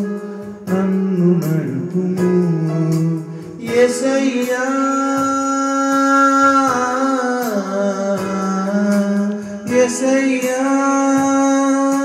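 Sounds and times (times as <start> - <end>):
electronic keyboard accompaniment: 0.0 - 12.0
man singing into a microphone: 0.0 - 12.0.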